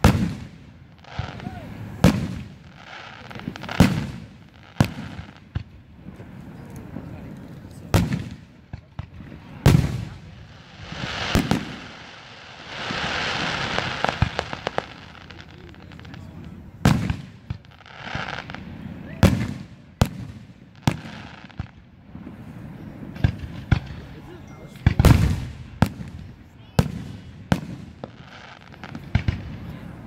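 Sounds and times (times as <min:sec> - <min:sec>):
firework shells booming: 0:07.9 - 0:18.6
steady hiss: 0:09.2 - 0:19.0.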